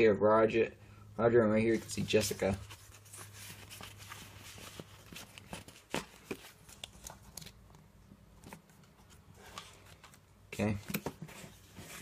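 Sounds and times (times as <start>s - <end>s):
cardboard and plastic case rustling: 8.4s - 12.0s.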